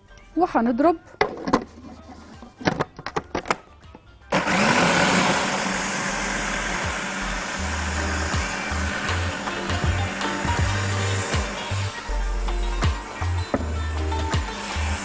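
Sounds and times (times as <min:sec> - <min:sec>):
food processor motor chopping: 0:04.3 - 0:12.0, 0:14.1 - 0:15.0.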